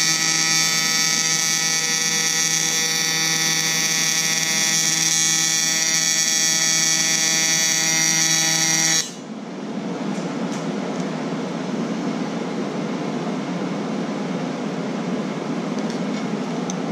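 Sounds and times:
welding arc buzzing: 0:00.0 - 0:09.3.

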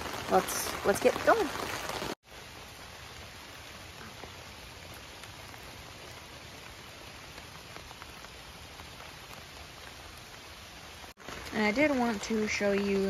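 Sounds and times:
raindrop ticks: 0:00.0 - 0:13.0
steady rain hiss: 0:00.0 - 0:13.0.

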